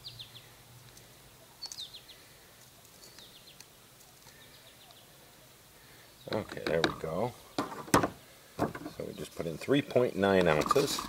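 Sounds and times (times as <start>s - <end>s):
small bird chirping: 0.0s - 5.4s
faint outdoor background noise: 0.0s - 11.0s.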